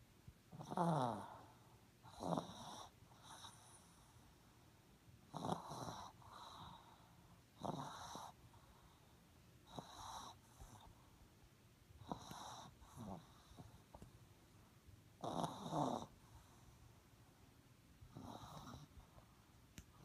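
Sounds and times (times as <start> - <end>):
dog snoring: 0.5 - 4.3, 5.3 - 9.0, 9.6 - 11.0, 12.0 - 14.0, 15.2 - 16.8, 18.1 - 19.2.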